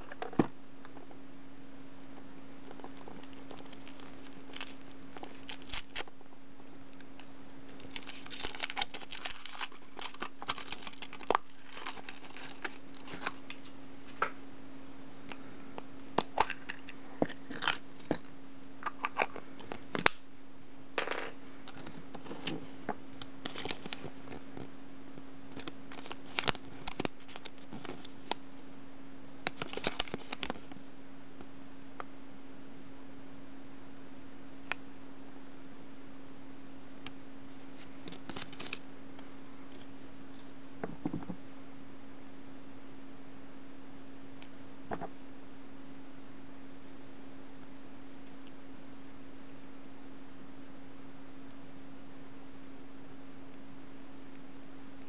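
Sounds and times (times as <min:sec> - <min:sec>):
steady low hum: 0:00.0 - 0:55.0
foil wrapper crinkling and tearing: 0:02.6 - 0:06.2, 0:06.8 - 0:13.7, 0:23.4 - 0:24.4, 0:25.5 - 0:28.4, 0:29.5 - 0:30.7, 0:37.9 - 0:38.9.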